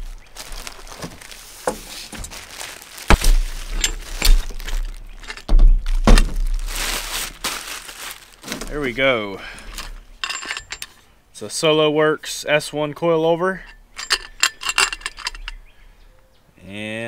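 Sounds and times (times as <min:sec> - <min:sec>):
plastic wrapping crinkling: 0:00.0 - 0:11.0
low thuds: 0:01.0 - 0:10.9.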